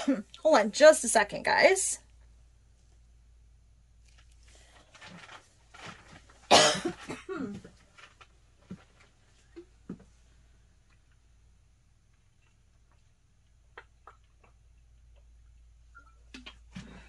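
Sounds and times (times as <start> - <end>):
woman coughing: 6.5 - 7.7.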